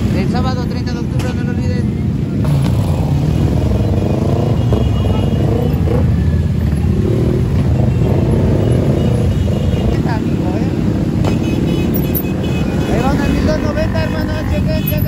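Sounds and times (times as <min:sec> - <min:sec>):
many motorcycle engines rumbling: 0:00.0 - 0:15.0
voices: 0:03.3 - 0:15.0.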